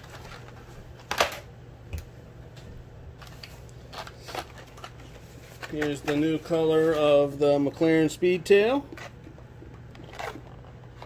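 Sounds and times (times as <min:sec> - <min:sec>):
plastic packs clicking and rustling: 0:00.0 - 0:01.5, 0:03.2 - 0:07.8, 0:09.8 - 0:11.0
low steady hum: 0:00.0 - 0:11.0.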